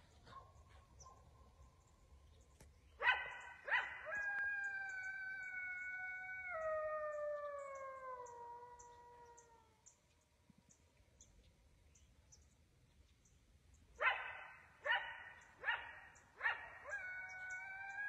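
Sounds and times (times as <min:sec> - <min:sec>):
coyote barking: 0:03.0 - 0:05.6, 0:14.0 - 0:18.0
coyote howling: 0:03.0 - 0:09.8, 0:14.0 - 0:18.0.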